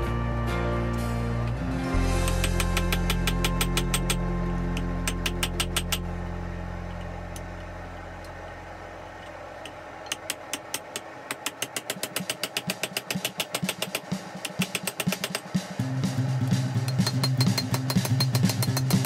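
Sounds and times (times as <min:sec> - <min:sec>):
low held music chord: 0:00.0 - 0:10.1
hammer striking steel on anvil: 0:02.2 - 0:04.2, 0:04.8 - 0:06.1, 0:10.1 - 0:15.6, 0:16.7 - 0:19.0.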